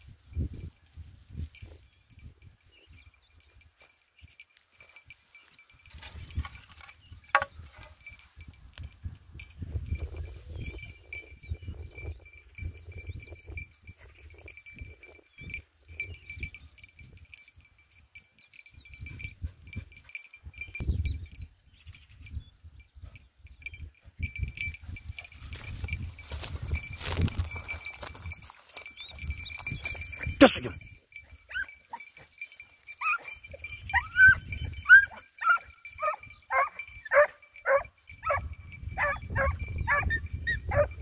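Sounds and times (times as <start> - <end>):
small bell tinkling: 0.0 - 41.0.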